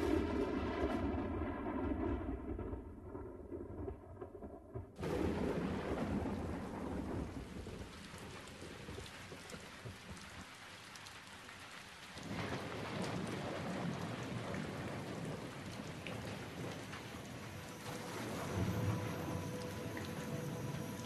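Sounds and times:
thunder rumbling: 0.0s - 9.6s, 12.2s - 21.0s
rain falling: 5.0s - 21.0s.

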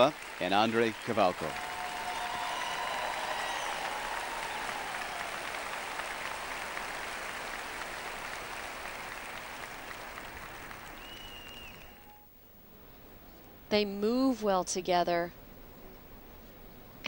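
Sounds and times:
crowd applauding: 0.0s - 12.2s.

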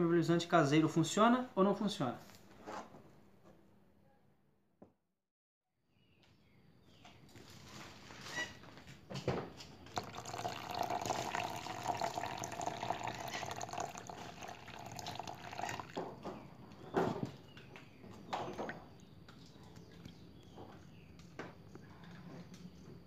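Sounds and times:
water pouring and splashing into box: 9.9s - 16.1s.

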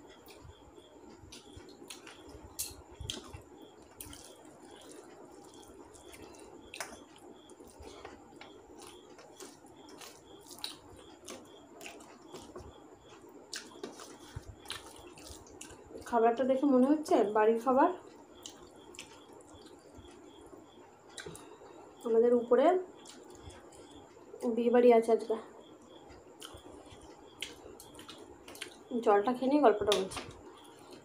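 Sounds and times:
chewing: 1.1s - 16.1s, 18.4s - 20.5s, 23.0s - 24.0s, 25.8s - 28.9s
fingers squishing wet food: 1.3s - 16.1s
wet clicks and smacks: 1.3s - 16.1s, 18.4s - 19.8s, 26.4s - 28.9s.

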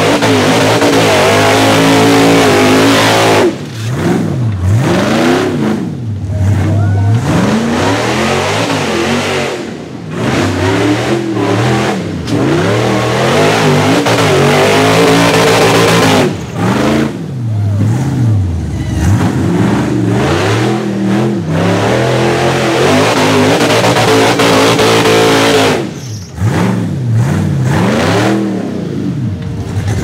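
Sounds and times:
engine revving hard: 0.0s - 30.0s.

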